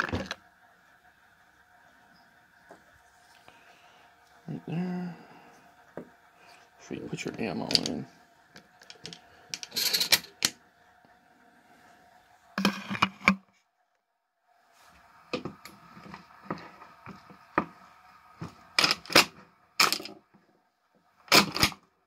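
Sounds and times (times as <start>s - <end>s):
shotgun shells clicking into magazine: 8.8s - 10.2s.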